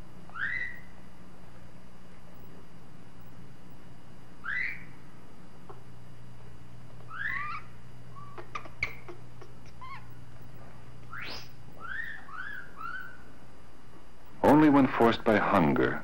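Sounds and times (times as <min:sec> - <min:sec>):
steady low hum: 0:00.0 - 0:16.0
monkey chirping calls: 0:00.3 - 0:00.9, 0:04.4 - 0:05.0, 0:07.1 - 0:10.2, 0:11.1 - 0:13.3.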